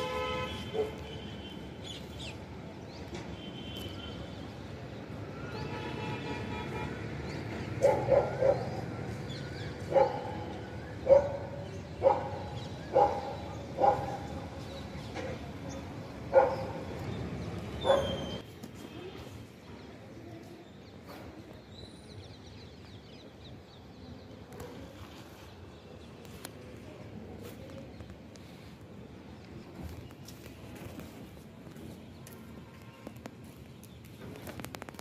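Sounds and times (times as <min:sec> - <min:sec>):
dog barking: 0:00.7 - 0:01.0, 0:07.8 - 0:08.8, 0:09.9 - 0:10.4, 0:11.0 - 0:14.3, 0:16.3 - 0:16.8, 0:17.8 - 0:18.3.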